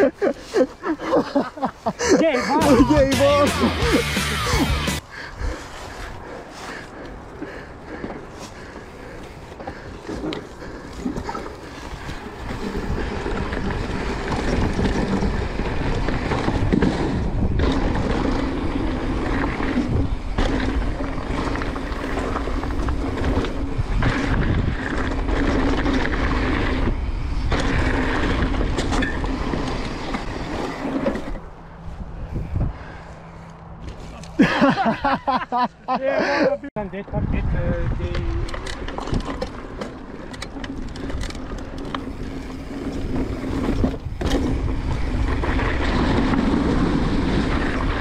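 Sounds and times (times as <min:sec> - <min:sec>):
bike tyres on dirt trail: 0:00.0 - 0:35.1, 0:37.7 - 0:48.0
wind over microphone: 0:05.2 - 0:33.4, 0:36.9 - 0:39.8, 0:40.6 - 0:48.0
bike knocks and rattles: 0:07.9 - 0:31.5, 0:38.0 - 0:48.0.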